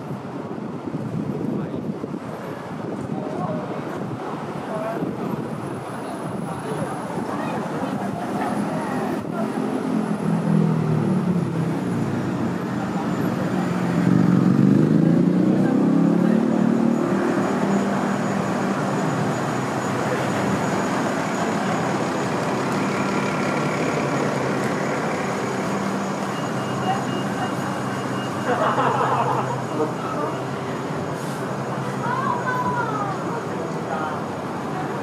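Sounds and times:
bus engine running: 0.0s - 35.0s
street traffic: 0.0s - 35.0s
voices: 2.5s - 10.7s, 11.6s - 35.0s.

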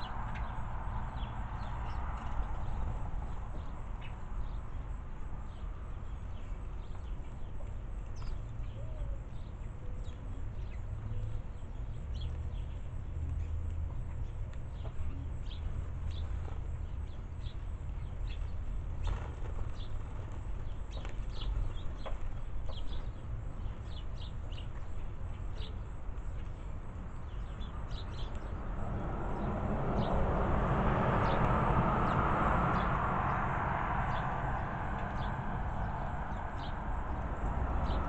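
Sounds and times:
sparrows chirping: 0.0s - 38.0s
low steady rumble: 27.2s - 38.0s
rush of noise: 28.4s - 38.0s.

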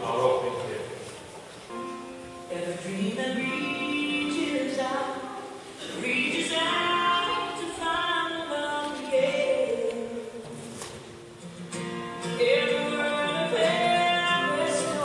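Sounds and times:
young voices singing together: 2.8s - 10.4s, 12.3s - 15.0s.

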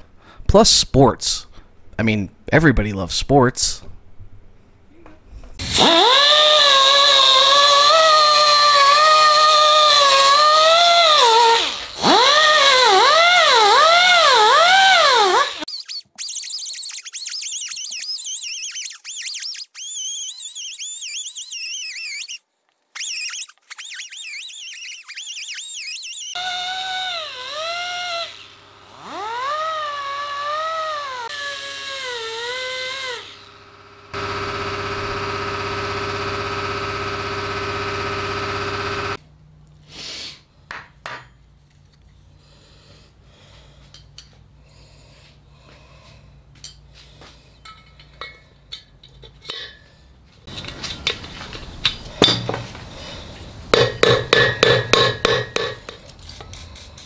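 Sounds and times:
die grinder whining: 5.6s - 15.7s, 26.3s - 39.2s.

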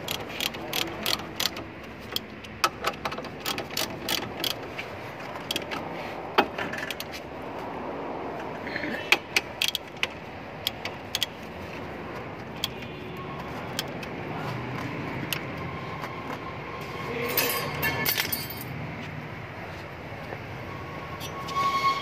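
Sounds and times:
ratchet wrench clicking: 0.0s - 4.7s, 9.6s - 11.4s.

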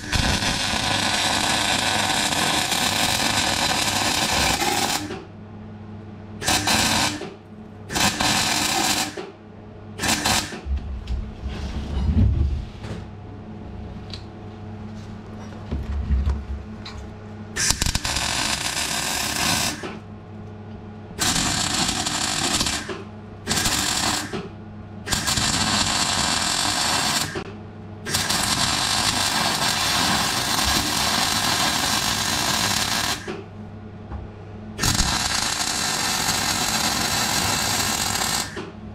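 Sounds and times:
arc welding crackle: 0.0s - 5.2s, 6.4s - 7.2s, 7.9s - 9.2s, 10.0s - 10.6s, 17.6s - 20.0s, 21.2s - 24.4s, 25.1s - 27.4s, 28.1s - 33.3s, 34.8s - 38.6s
steady low hum: 0.0s - 8.7s, 9.3s - 25.1s, 33.4s - 36.8s.

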